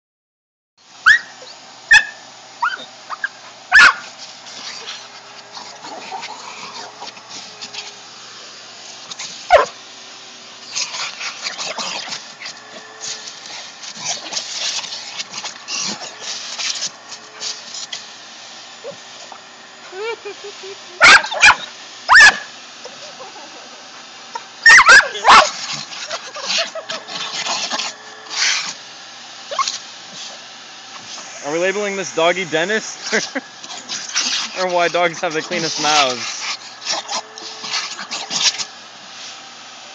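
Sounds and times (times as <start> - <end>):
dog yelping: 1.0 - 4.1, 9.5 - 9.8, 18.8 - 19.4, 21.0 - 23.0, 24.3 - 27.5, 29.5 - 29.8.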